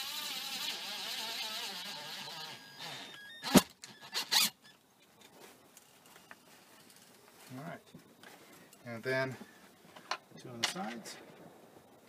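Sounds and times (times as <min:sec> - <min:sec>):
cordless drill driving screw: 0:00.0 - 0:04.6.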